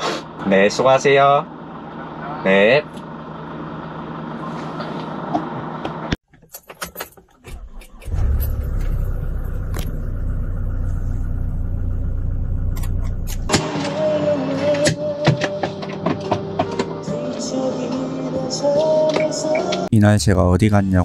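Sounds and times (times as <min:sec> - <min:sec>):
truck engine starting and idling: 0:03.0 - 0:15.2.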